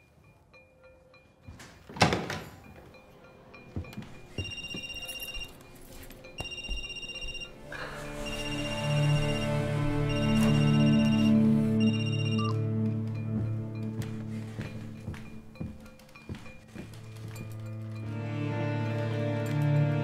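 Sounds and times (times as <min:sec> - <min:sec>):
low music: 0:02.8 - 0:20.0
telephone ringing: 0:04.2 - 0:05.7, 0:06.3 - 0:07.6, 0:08.2 - 0:12.6.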